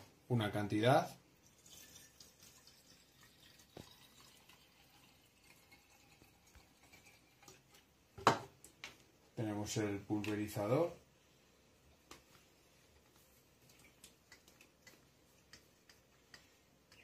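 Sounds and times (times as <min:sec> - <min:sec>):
liquid trickling into can: 0:01.4 - 0:07.9.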